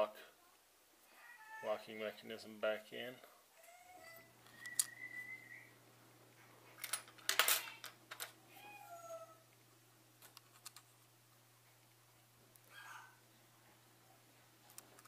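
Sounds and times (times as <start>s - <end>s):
faint high-pitched calls: 3.6s - 5.7s, 12.7s - 13.2s
small lens parts clicking: 10.2s - 10.9s.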